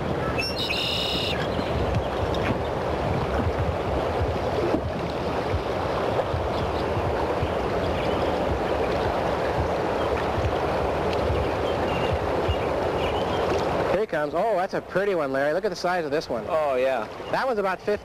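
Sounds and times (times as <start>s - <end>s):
wind rumble on microphone: 0.0s - 14.0s
river current rushing: 0.0s - 18.0s.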